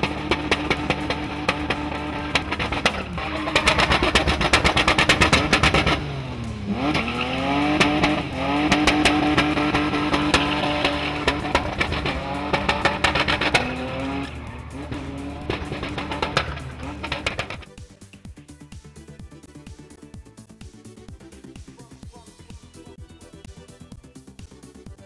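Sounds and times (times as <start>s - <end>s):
engine at high revs: 0.0s - 17.7s
tire squeal: 0.0s - 17.7s.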